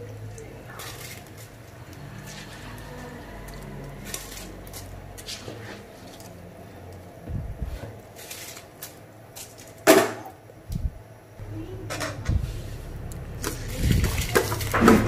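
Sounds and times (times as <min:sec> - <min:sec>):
faint low hum: 0:10.5 - 0:15.0.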